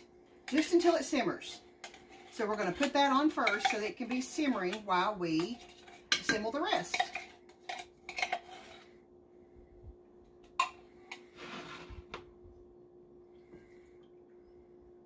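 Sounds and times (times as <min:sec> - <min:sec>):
low hum: 0:08.7 - 0:15.0
scraping noise: 0:11.3 - 0:12.2.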